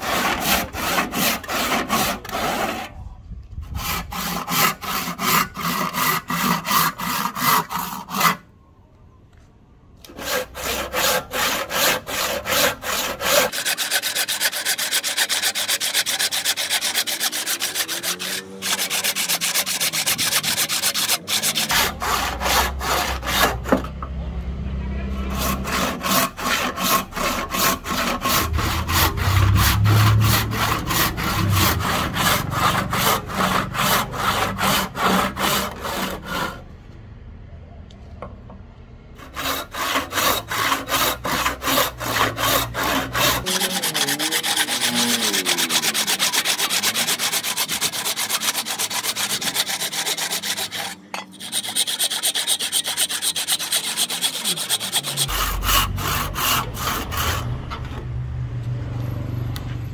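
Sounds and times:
hand saw cutting wood: 0.0 - 3.0, 3.6 - 8.4, 10.0 - 24.0, 25.1 - 36.6, 39.2 - 58.0.

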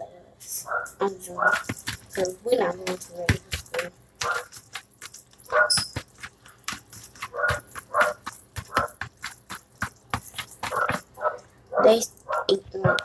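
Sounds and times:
dog barking: 0.6 - 1.8, 4.2 - 4.6, 5.4 - 5.9, 7.3 - 9.0, 10.7 - 13.0.

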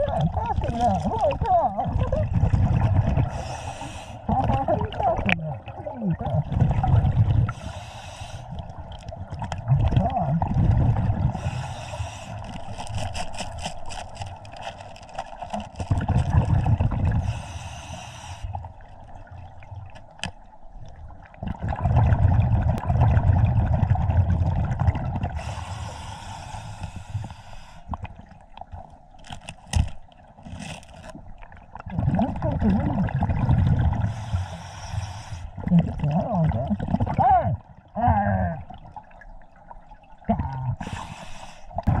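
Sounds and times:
exhaled bubbles underwater: 0.0 - 13.0, 15.3 - 28.9, 31.1 - 42.0
hissing breath: 3.3 - 4.3, 7.5 - 8.6, 11.4 - 12.7, 17.2 - 18.6, 25.4 - 27.9, 34.1 - 35.5, 40.8 - 41.8.

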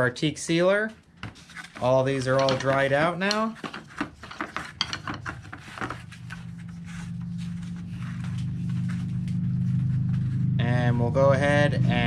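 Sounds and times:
wooden strips clicking and clacking: 1.6 - 6.0
low engine hum: 6.0 - 12.0.

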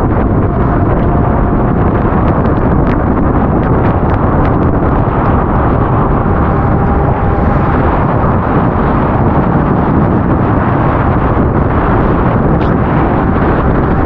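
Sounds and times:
motorcycle engine running: 0.0 - 14.0
wind buffeting microphone: 0.0 - 14.0.

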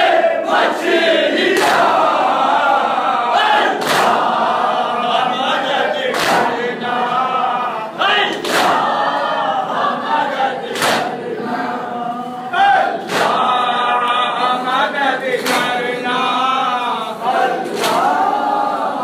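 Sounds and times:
men chanting in unison: 0.0 - 19.0
chest-beating slaps: 3.8 - 4.3, 6.1 - 6.6, 8.3 - 8.9, 10.7 - 11.2, 13.0 - 13.6, 15.4 - 15.8, 17.7 - 18.1.

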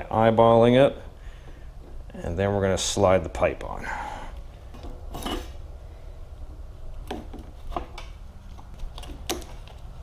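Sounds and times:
metal scraping on metal: 4.9 - 5.6.

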